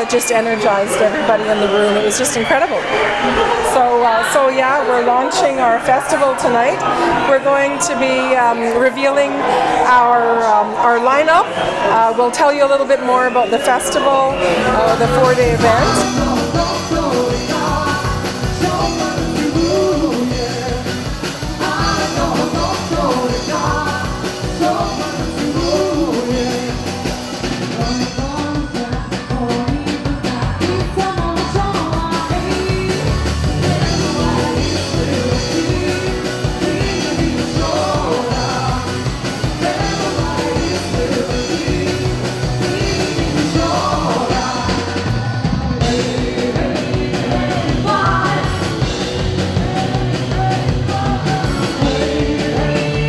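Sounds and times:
rock band playing: 0:13.9 - 0:53.0
person singing: 0:14.0 - 0:53.0.

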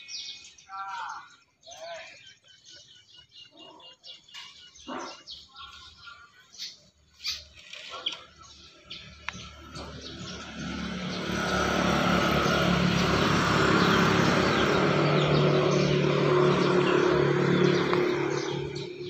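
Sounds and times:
vehicle engine running: 0:08.4 - 0:19.0.

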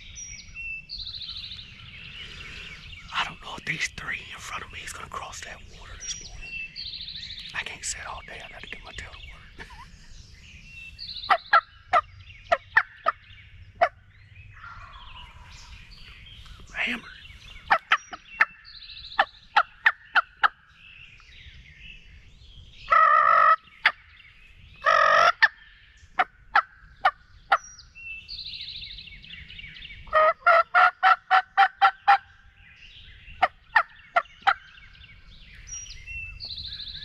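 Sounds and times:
songbirds chirping: 0:00.0 - 0:37.0
turkey yelps and clucks: 0:22.9 - 0:24.0, 0:24.8 - 0:25.5, 0:30.1 - 0:32.2.

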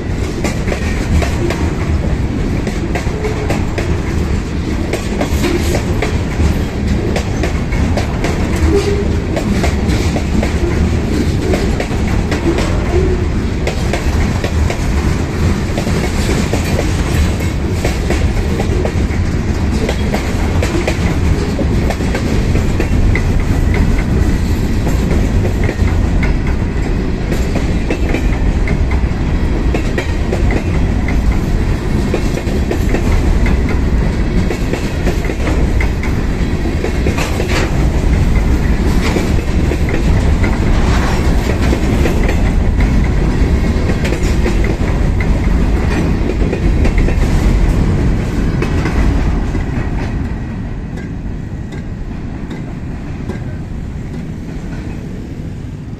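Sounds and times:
clickety-clack over rail joints: 0:00.0 - 0:55.9
freight train wheels rumbling on rails: 0:00.0 - 0:55.9.

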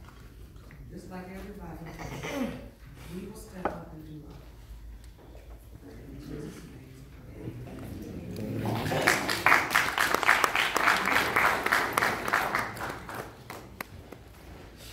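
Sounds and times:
low voices: 0:05.8 - 0:09.6
audience applauding: 0:08.4 - 0:14.2.

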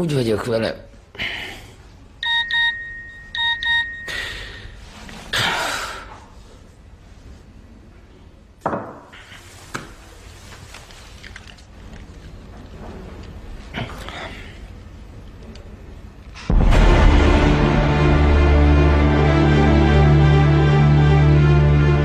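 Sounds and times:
phone ringtone beeps: 0:02.2 - 0:04.4.

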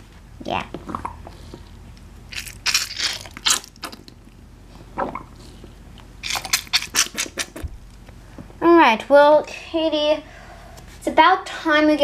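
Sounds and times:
rubber duck squirting water: 0:06.2 - 0:07.6.

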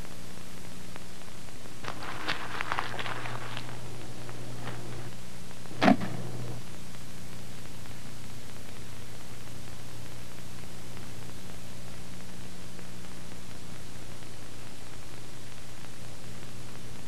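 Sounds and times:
electrical hum: 0:00.0 - 0:17.0
rustling and small clicks: 0:01.8 - 0:05.2
sharp knock: 0:05.8 - 0:06.3.

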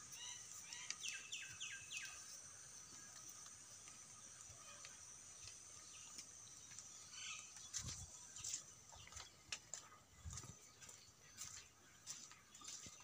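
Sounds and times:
steady high hiss: 0:00.0 - 0:08.8
footsteps on ground: 0:02.9 - 0:13.0.

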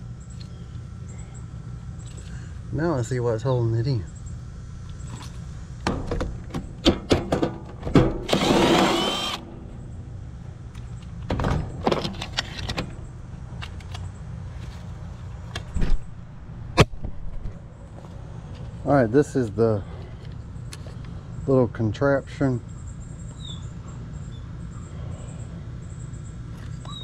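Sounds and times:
power driver whirring: 0:08.1 - 0:09.6.

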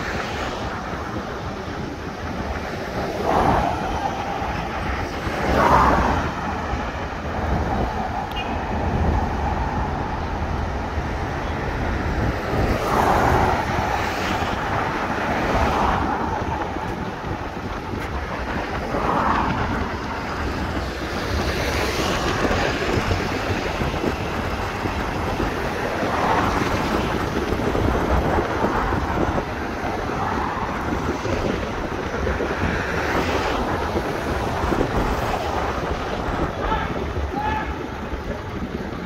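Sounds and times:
street traffic hum: 0:00.0 - 0:39.0
wind buffeting microphone: 0:00.0 - 0:39.0.

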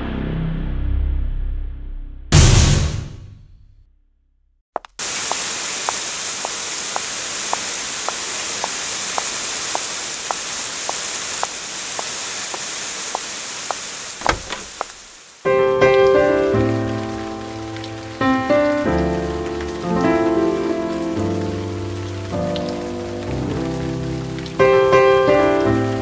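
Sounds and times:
water drip plinking: 0:04.8 - 0:15.1
steady rain hiss: 0:04.8 - 0:26.0.

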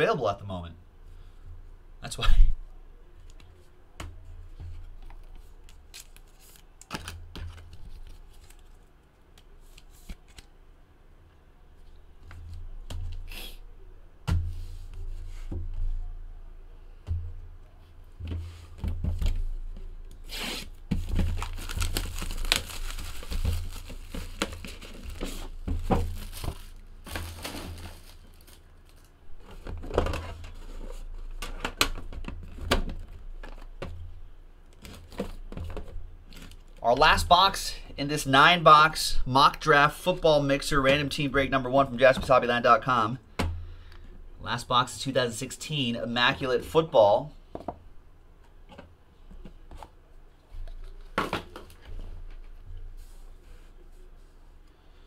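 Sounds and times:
packaging tearing and crinkling: 0:20.4 - 0:29.1.

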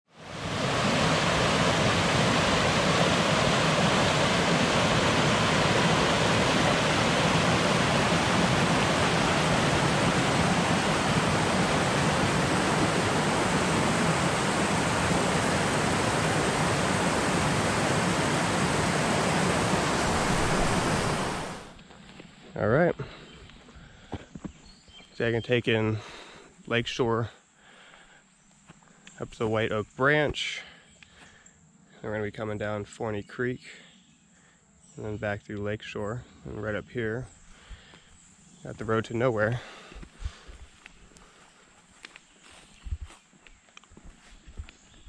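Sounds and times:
stream rushing over boulders: 0:00.2 - 0:21.8.

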